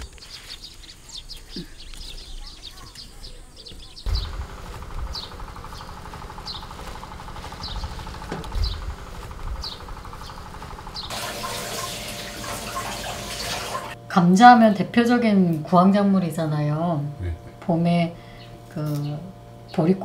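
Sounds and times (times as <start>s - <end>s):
steady hum: 3.4s - 20.0s
running water: 11.1s - 14.0s.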